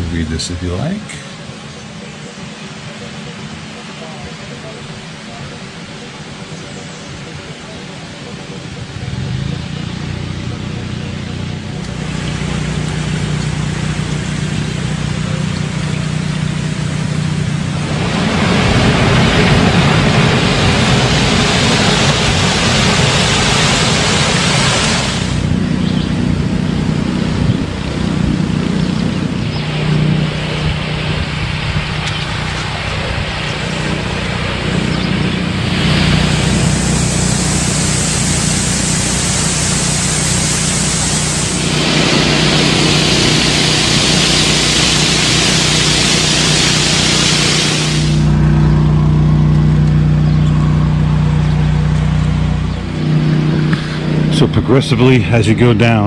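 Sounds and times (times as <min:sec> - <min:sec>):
steady low hum: 0:00.0 - 0:56.0
water pouring over a weir: 0:36.4 - 0:48.0.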